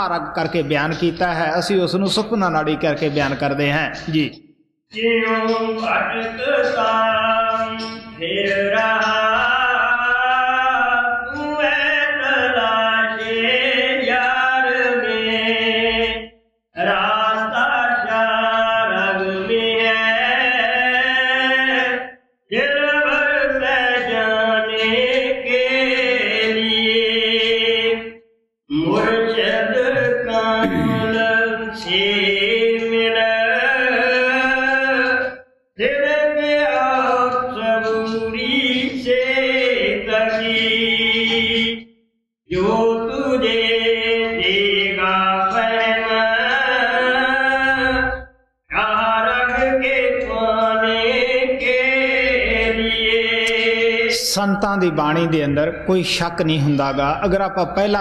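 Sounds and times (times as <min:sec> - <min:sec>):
person chanting a hymn: 0:16.8 - 0:28.0, 0:28.7 - 0:41.8.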